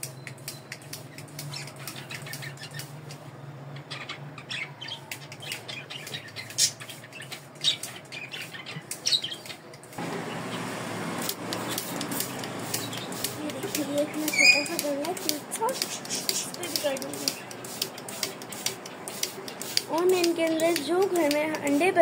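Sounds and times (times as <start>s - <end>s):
spray bottle squirts: 11.2s - 22.0s.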